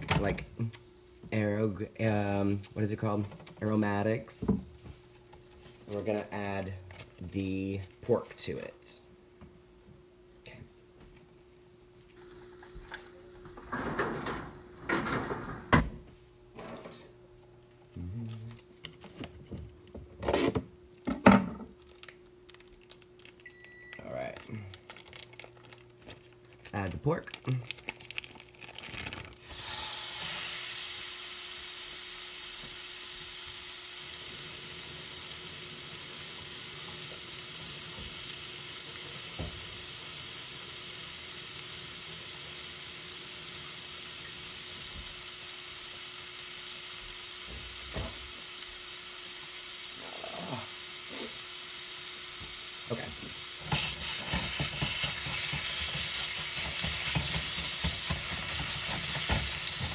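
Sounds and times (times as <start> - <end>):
meat sizzling in a skillet: 12.2 - 13.8, 29.4 - 59.9.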